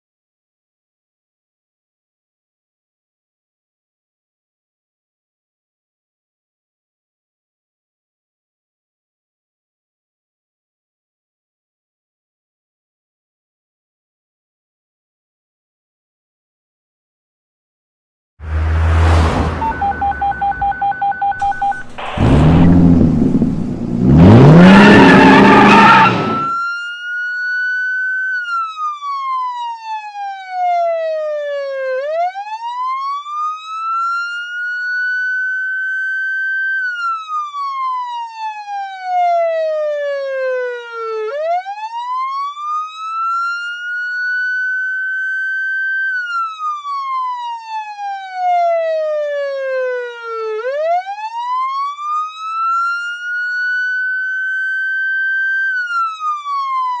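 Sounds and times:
noisy burst with rising tone: 18.4s - 26.5s
police siren wailing: 18.5s - 57.0s.

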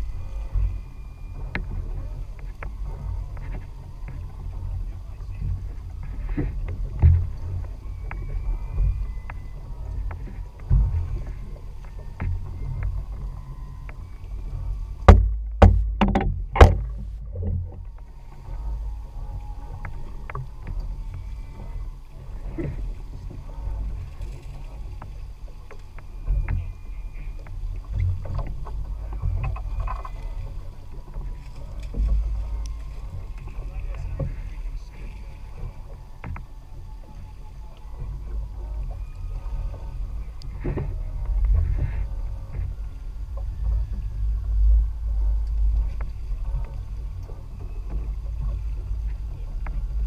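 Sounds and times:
low rumble of boat at sea: 0.0s - 50.0s
sharp knocks: 15.1s - 17.6s
knocks on boat hull: 15.1s - 17.8s.

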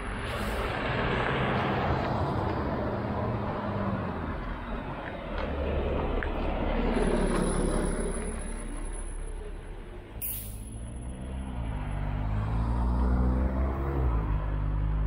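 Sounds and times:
diesel engine running: 0.0s - 11.9s
street traffic: 0.0s - 15.0s
air brake hiss: 10.2s - 10.7s.

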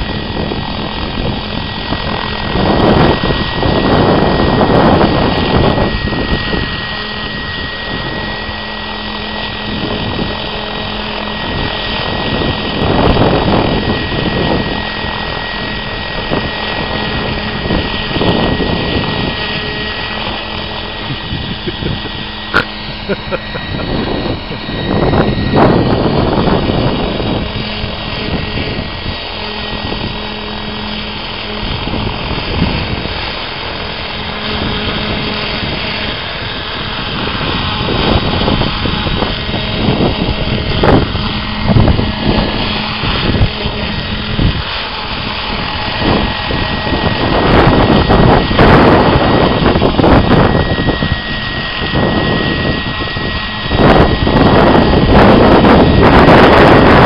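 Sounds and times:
model helicopter motor whine: 0.0s - 57.0s
rushing rotor wash: 0.0s - 57.0s.

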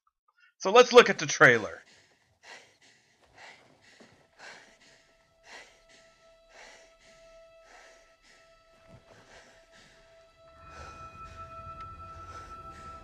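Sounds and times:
soft breathing: 1.6s - 13.0s
faint held musical tone: 5.9s - 13.0s.

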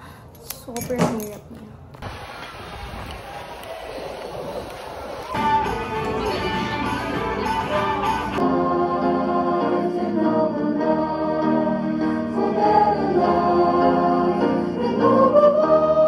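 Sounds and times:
group singing with accompaniment: 6.5s - 16.0s.

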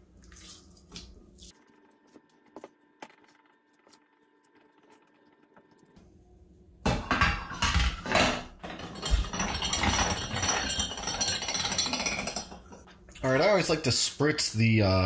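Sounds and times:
metal clinking and scraping: 7.0s - 12.9s.

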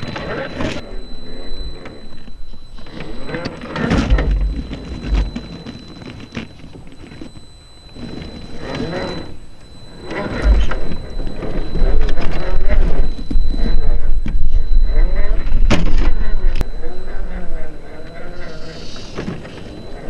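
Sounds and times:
rc car motor whining: 0.0s - 20.0s
low rumble: 7.7s - 18.4s.

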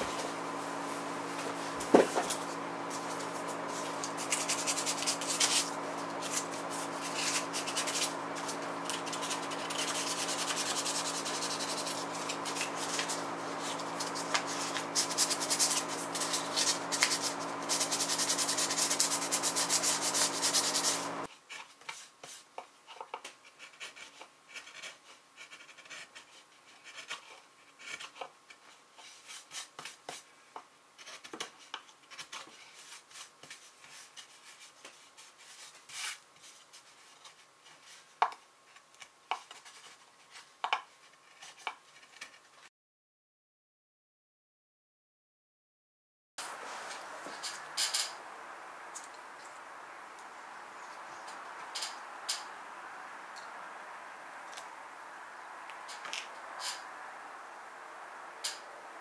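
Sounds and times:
sandpaper rubbing on wood: 2.2s - 21.3s
carving knife scraping wood: 2.2s - 30.2s, 31.0s - 36.2s.

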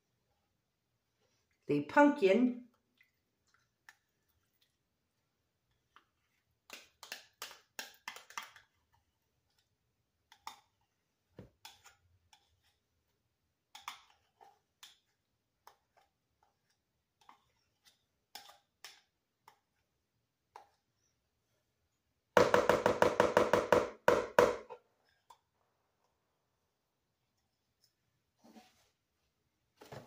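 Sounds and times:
spoon scraping a bowl: 11.6s - 13.1s, 13.7s - 19.8s.

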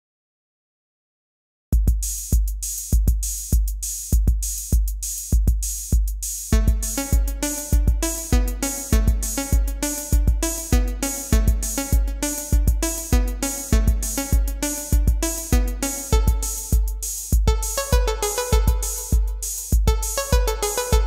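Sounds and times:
deep booming kick drum: 1.8s - 8.1s, 9.0s - 10.5s, 11.4s - 18.0s, 18.6s - 20.1s
sharp hi-hat clicks: 1.8s - 21.0s.

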